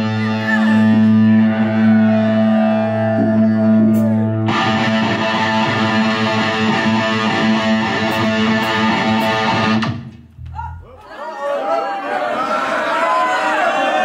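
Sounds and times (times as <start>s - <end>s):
rock band playing: 0.0s - 10.4s
distorted electric guitar chord: 4.4s - 10.1s
drums and cymbals crashing: 8.1s - 10.1s.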